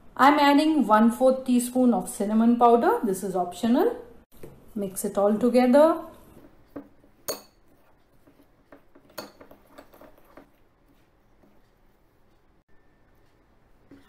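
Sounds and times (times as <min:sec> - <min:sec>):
fork scraping glass bowl: 0:07.4 - 0:10.5.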